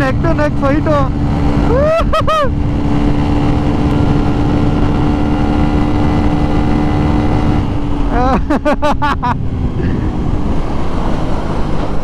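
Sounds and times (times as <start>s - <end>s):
motorcycle engine at high speed: 0.0s - 12.0s
wind rush: 0.0s - 12.0s
vocal whoop: 1.7s - 2.5s.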